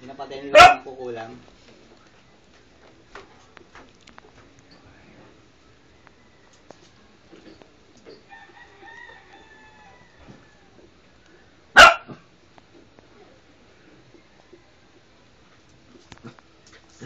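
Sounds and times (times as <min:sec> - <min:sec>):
rooster crowing: 0:05.8 - 0:07.2, 0:08.1 - 0:10.9, 0:14.0 - 0:15.2.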